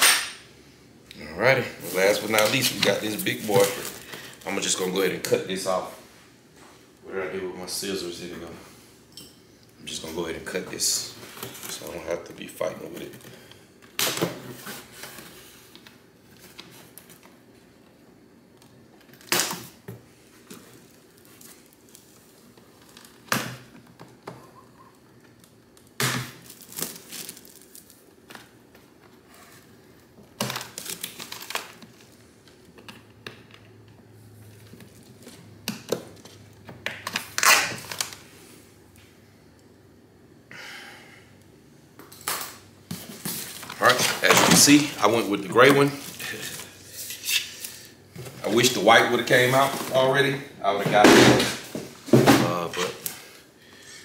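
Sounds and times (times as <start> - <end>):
cardboard packaging crinkling and tearing: 1.8 - 4.8, 25.4 - 28.2, 30.4 - 32.2.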